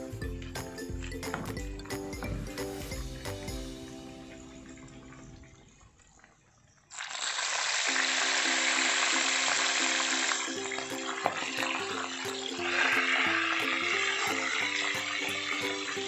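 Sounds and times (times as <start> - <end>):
background music: 0.0 - 5.4, 7.9 - 16.0
fish frying in hot oil: 6.6 - 16.0.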